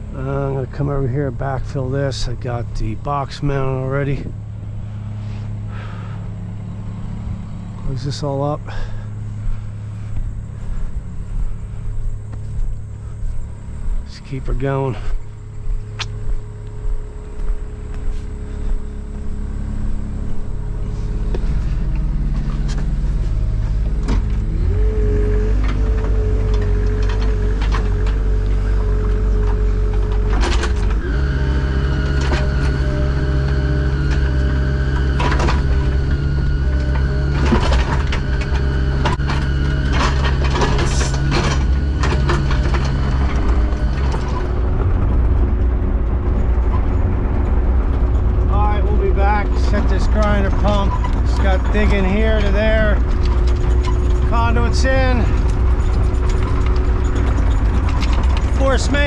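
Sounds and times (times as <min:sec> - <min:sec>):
earthmoving machine engine: 0:00.0 - 0:59.0
metal knocks and clanks: 0:32.0 - 0:59.0.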